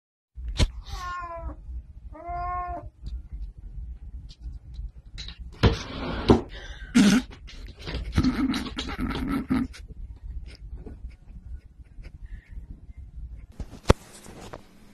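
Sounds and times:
cat meowing: 0.8 - 2.9.

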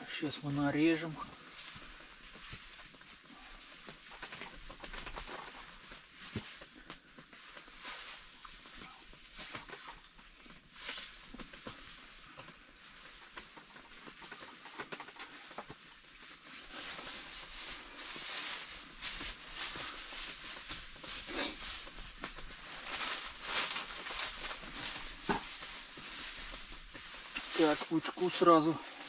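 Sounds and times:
steady hiss: 15.8 - 29.0.

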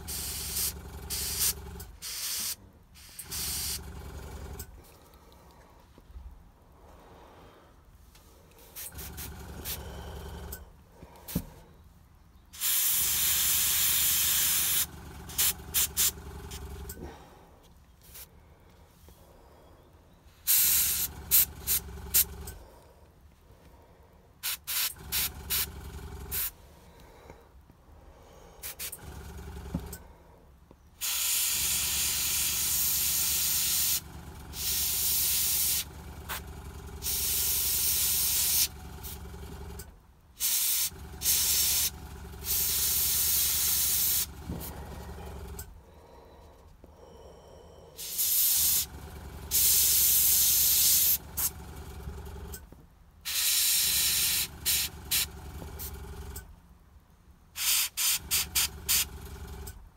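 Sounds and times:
airbrush spraying hiss: 0.0 - 3.8, 12.6 - 16.1, 20.4 - 22.3, 24.4 - 25.7, 31.0 - 34.0, 34.6 - 36.4, 37.0 - 38.7, 40.4 - 41.9, 42.5 - 44.3, 48.0 - 48.9, 49.5 - 51.5, 53.3 - 55.3, 57.6 - 59.0
air compressor motor hum: 0.0 - 5.0, 8.5 - 11.7, 12.6 - 17.4, 20.3 - 22.8, 24.4 - 27.3, 28.3 - 30.1, 31.0 - 46.0, 48.0 - 56.4, 57.6 - 59.8.

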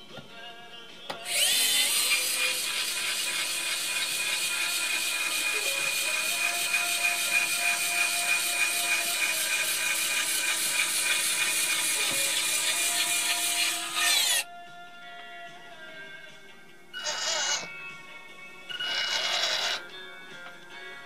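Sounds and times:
small electric motor whirring: 1.2 - 14.4, 17.0 - 17.7, 18.8 - 19.8.

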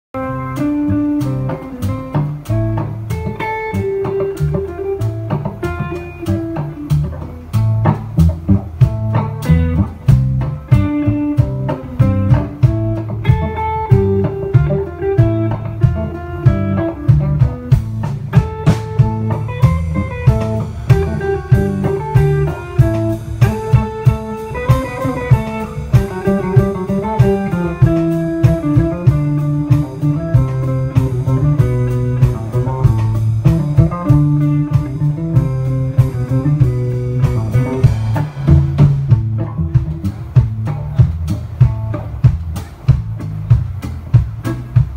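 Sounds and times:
bass guitar: 0.1 - 44.9
drum kit beat: 0.2 - 44.9
electric guitar: 0.2 - 44.9.

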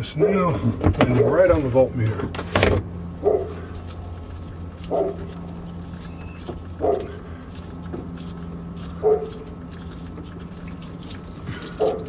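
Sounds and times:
steady low hum: 0.0 - 12.0
animal yelping: 4.8 - 7.4.

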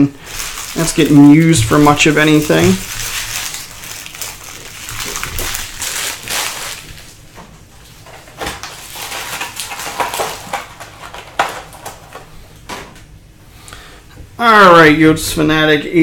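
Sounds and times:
foil wrappers crinkling: 0.0 - 12.4.

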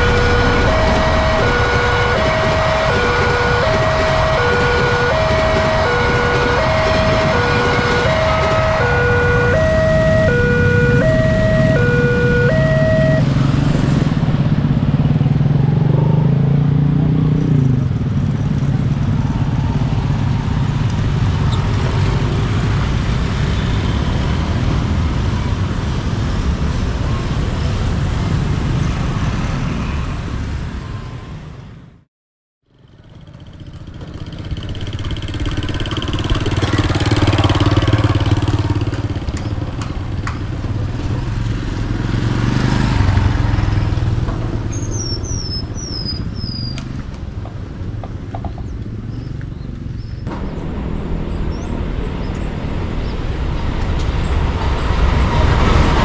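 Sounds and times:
level crossing two-tone alarm: 0.0 - 13.3
motorcycle engines: 0.0 - 31.9, 32.7 - 56.0
passing train rumble: 0.0 - 32.0, 32.8 - 56.0
road traffic: 0.0 - 56.0.

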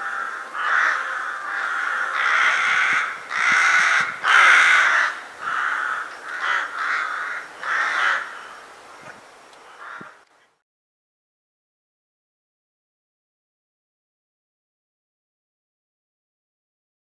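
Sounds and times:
rooks cawing: 0.0 - 8.7, 9.6 - 10.3.

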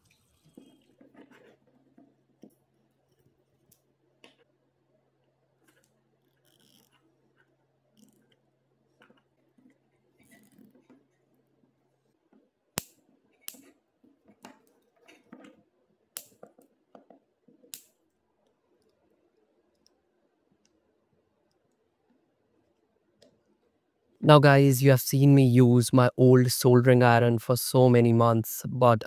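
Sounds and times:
zip tie rasping: 6.3 - 8.2.

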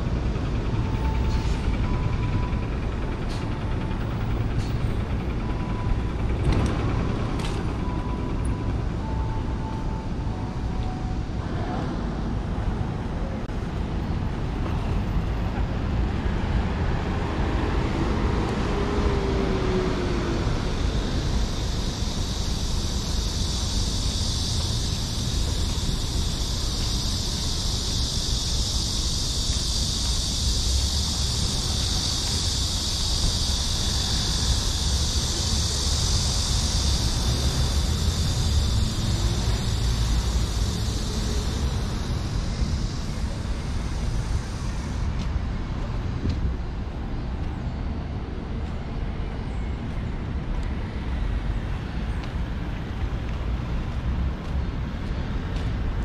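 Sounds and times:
road traffic rumble: 0.0 - 56.0
high hiss: 17.2 - 47.7.

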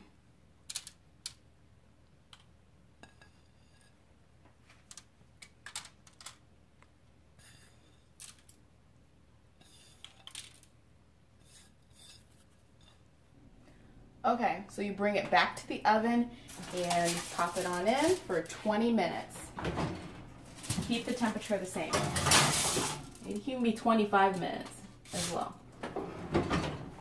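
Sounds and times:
cheese sprinkling crackles: 16.4 - 18.8
foil and plate handled: 16.5 - 18.8, 20.4 - 25.5.

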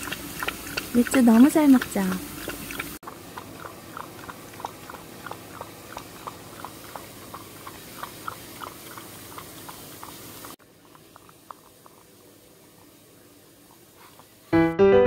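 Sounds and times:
dog lapping water: 0.0 - 13.0.

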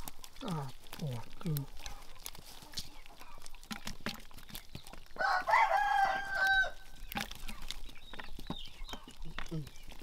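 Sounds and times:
wet fish clicking in a net: 0.0 - 10.0
rooster crowing: 5.2 - 7.0.

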